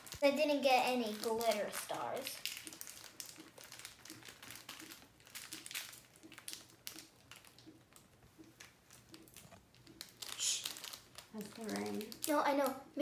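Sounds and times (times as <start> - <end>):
plastic packets crinkling: 0.0 - 13.0.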